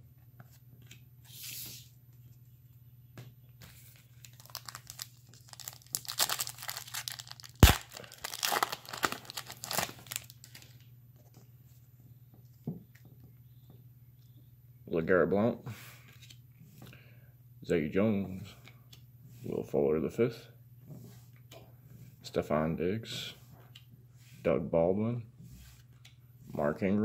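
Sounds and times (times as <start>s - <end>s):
foil wrapper tearing and crinkling: 4.1s - 10.8s.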